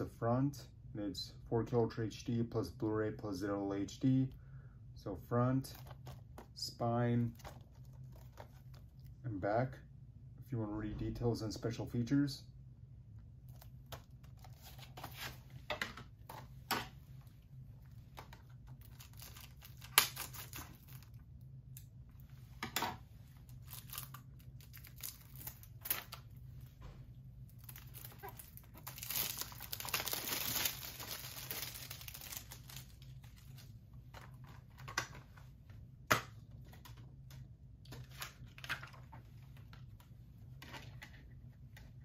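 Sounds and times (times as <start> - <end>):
shrink wrap tearing and crinkling: 7.2 - 9.1, 13.4 - 15.4, 17.8 - 21.8, 23.3 - 26.7, 27.5 - 34.9.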